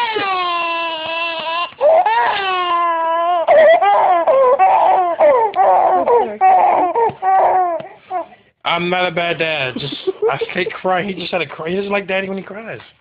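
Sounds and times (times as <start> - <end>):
baby crying: 0.0 - 8.4.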